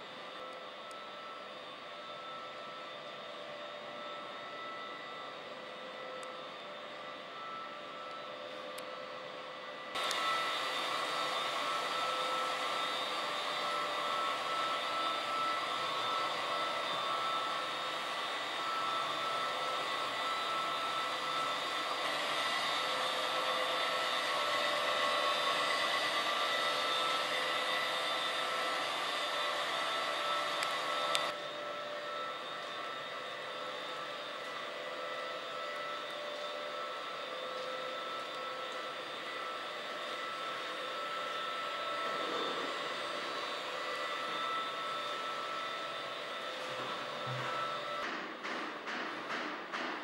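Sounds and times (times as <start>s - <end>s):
drum vacuum running: 10.0s - 50.0s.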